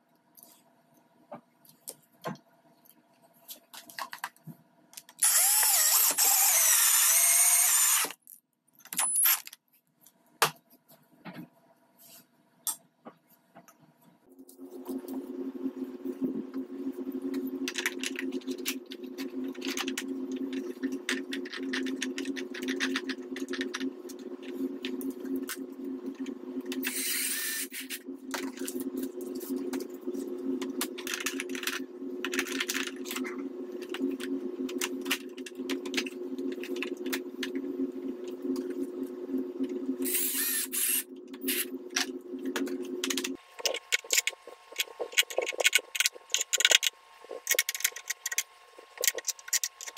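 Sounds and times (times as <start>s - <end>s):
plastic parts clicking and clattering: 3.5s - 6.2s, 43.0s - 49.9s
low two-tone hum: 14.2s - 49.9s.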